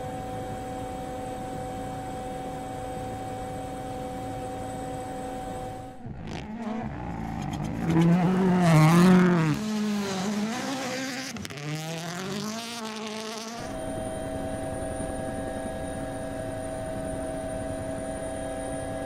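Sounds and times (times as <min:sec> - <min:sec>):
steady even drone: 0:00.0 - 0:19.0
rally car engine revving: 0:06.0 - 0:13.8.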